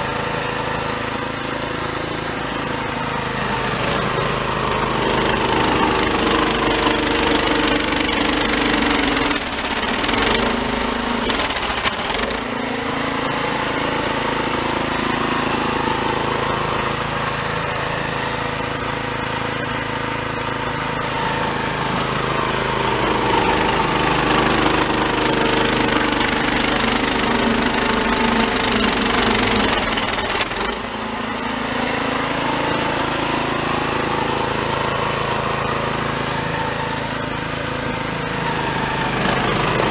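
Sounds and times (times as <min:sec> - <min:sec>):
snowblower engine running under load: 0:00.0 - 0:39.9.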